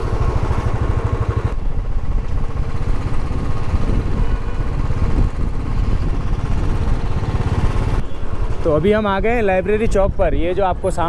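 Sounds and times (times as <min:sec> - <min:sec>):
road traffic rumble: 0:00.0 - 0:11.0
wind buffeting microphone: 0:01.6 - 0:08.0.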